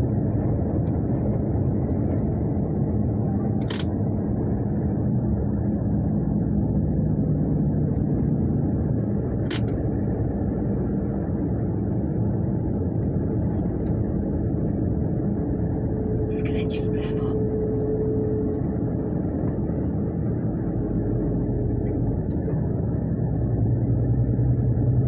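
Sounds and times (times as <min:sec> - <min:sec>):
engine and tyre rumble: 0:00.0 - 0:25.0.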